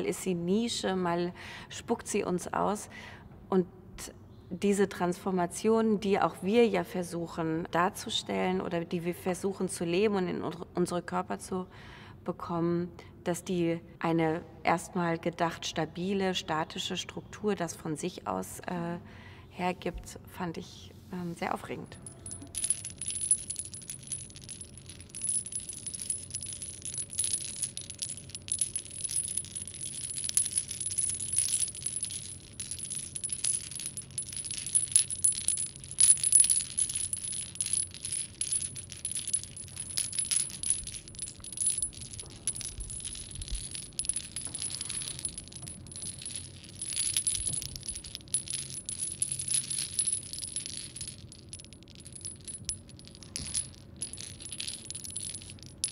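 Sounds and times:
metallic jingling and clinking: 21.9 - 55.9.

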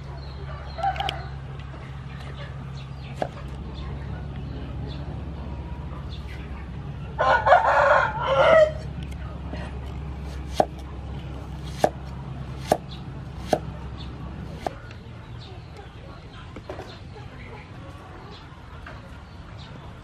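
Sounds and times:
rooster crowing: 7.2 - 8.9
cleaver chopping on wooden board: 10.3 - 10.8, 11.6 - 13.7, 14.5 - 14.8.

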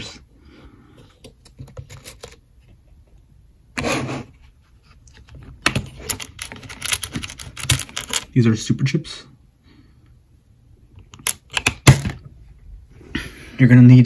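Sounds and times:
loose small parts rattling: 5.8 - 8.3.

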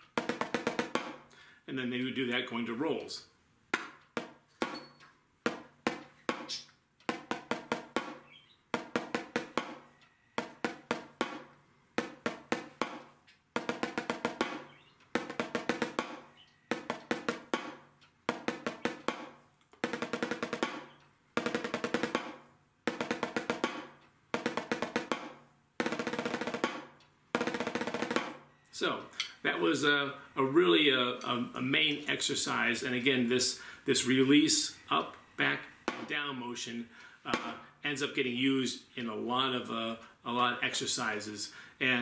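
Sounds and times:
drumsticks on practice pad: 0.0 - 1.4, 3.7 - 29.9, 35.0 - 36.3, 37.3 - 37.8.

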